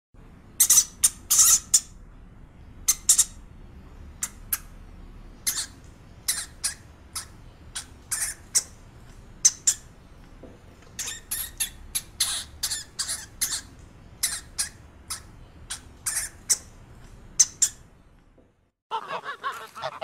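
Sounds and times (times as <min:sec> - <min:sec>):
high-pitched animal squeaks: 0:00.6 - 0:01.9, 0:05.5 - 0:08.7, 0:11.0 - 0:16.7.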